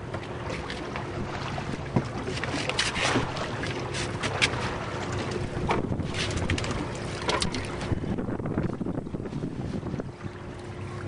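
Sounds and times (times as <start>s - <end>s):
boat engine running: 0.0s - 11.0s
wind on microphone: 4.3s - 10.5s.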